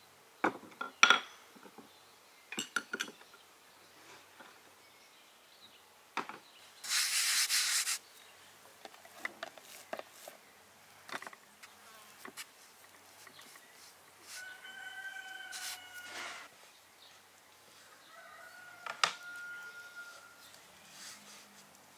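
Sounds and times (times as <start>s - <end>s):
loud hissing burst: 6.8s - 8.0s
rooster crowing: 14.3s - 16.5s, 18.0s - 20.6s.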